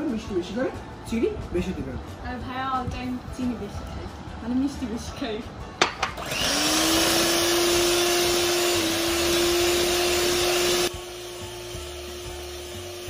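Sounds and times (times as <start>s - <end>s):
electric mixer motor whirring: 6.0s - 13.0s.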